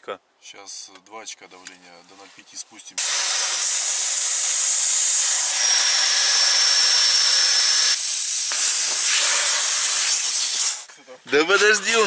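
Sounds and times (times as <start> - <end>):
air hissing from tyre valve: 3.0 - 10.9.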